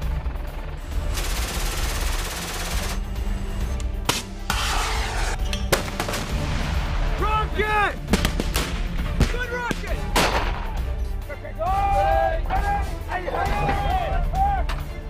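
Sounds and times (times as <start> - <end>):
background music: 0.0 - 15.0
sharp gunshots: 8.1 - 10.8.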